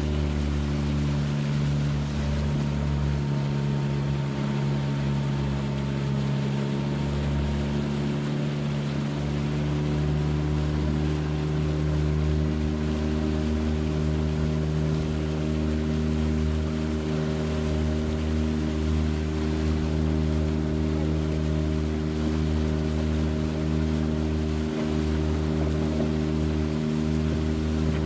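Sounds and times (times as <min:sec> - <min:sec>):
boat motor droning: 0:00.0 - 0:28.0
water rushing past hull: 0:00.0 - 0:28.0.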